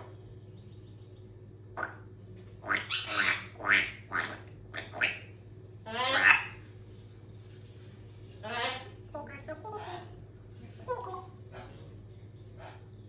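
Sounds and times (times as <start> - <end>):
parrot chattering calls: 1.8 - 6.6.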